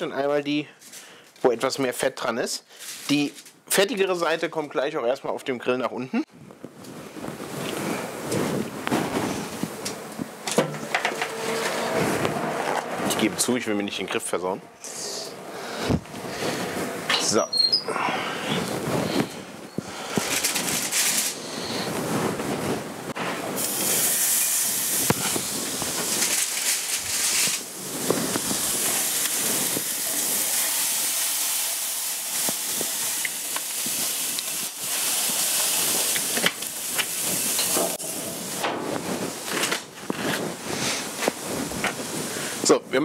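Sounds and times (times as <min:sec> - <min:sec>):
meat sizzling on a grill: 0:23.4 - 0:38.6.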